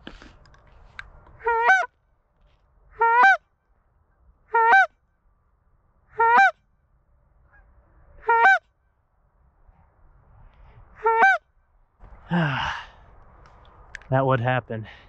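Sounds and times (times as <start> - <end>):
goose call honks: 1.4 - 1.9, 2.9 - 3.4, 4.5 - 4.9, 6.1 - 6.6, 7.5 - 8.6, 11.0 - 11.4.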